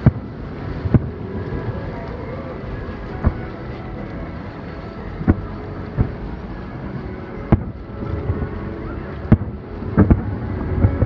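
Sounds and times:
steady background noise: 0.0 - 11.0
distant firework bangs: 9.3 - 11.0.

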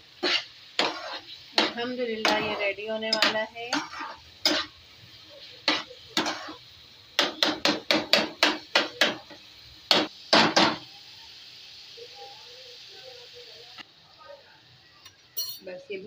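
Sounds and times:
food sizzling in oil: 0.0 - 16.0
metal spatula scraping frying pan: 0.2 - 4.8, 5.7 - 6.6.

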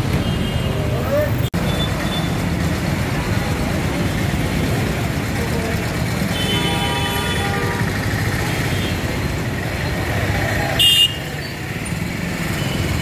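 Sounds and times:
road traffic engines: 0.0 - 13.0
vehicle horn: 6.3 - 7.9, 10.8 - 11.3.

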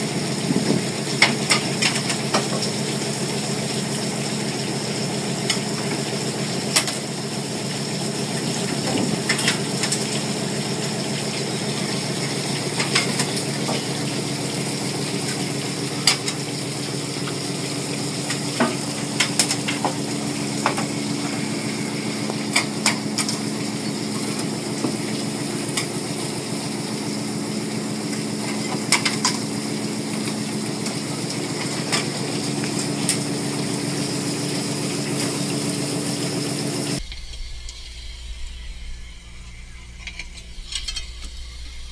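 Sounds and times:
boat engine and hauler hum: 0.0 - 41.9
higher tone: 16.8 - 25.8, 37.0 - 41.9.

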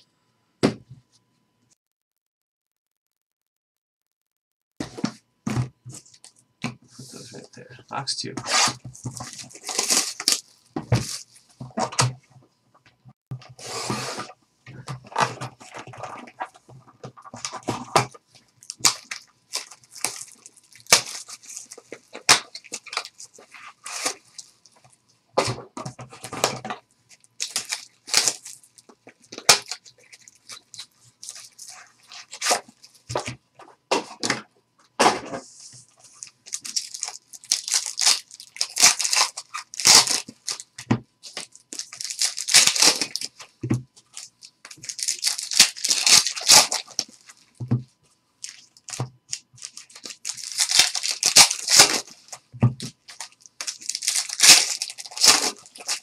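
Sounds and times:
shrink wrap crinkling and tearing: 8.4 - 12.0, 17.2 - 25.0, 26.1 - 33.2, 35.9 - 47.6, 48.4 - 56.0.

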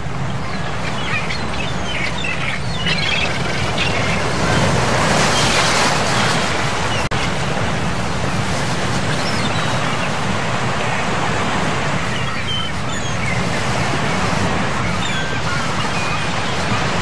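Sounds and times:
rushing outdoor noise: 0.0 - 17.0
bird chirps: 0.4 - 4.2.

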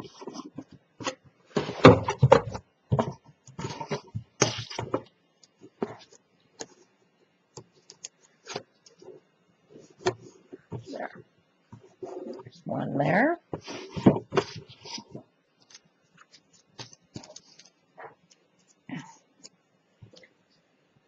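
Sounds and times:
paper rustling: 2.9 - 6.2, 13.6 - 18.8.

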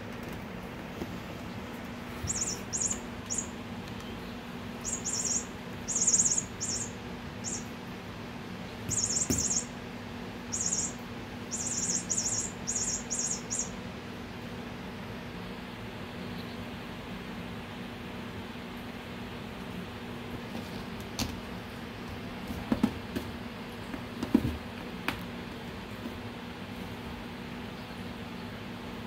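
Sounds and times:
steady low hum: 0.0 - 29.0
high-pitched bird chirps: 2.2 - 4.2, 4.8 - 7.8, 8.9 - 9.8, 10.5 - 13.8.

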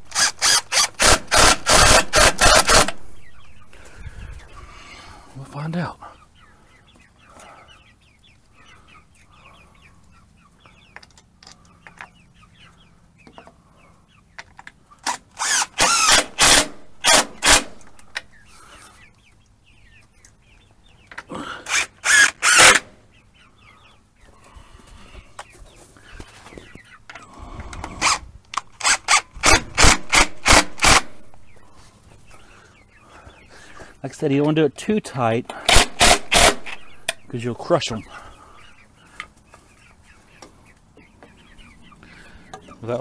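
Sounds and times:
cordless drill driving screws: 0.0 - 3.0, 15.1 - 17.7, 21.7 - 22.8, 28.8 - 31.1, 35.7 - 36.8
chickens clucking softly: 3.0 - 15.0, 23.0 - 28.5, 36.7 - 43.0.

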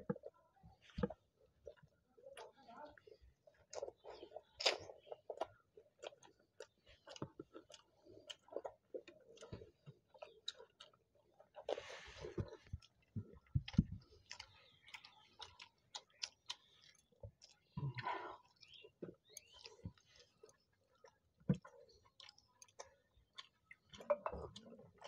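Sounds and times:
wet chewing and lip smacks: 0.1 - 25.0.

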